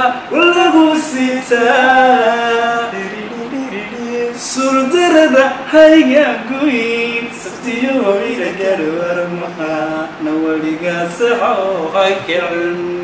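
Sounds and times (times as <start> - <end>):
man singing unaccompanied: 0.0 - 13.0.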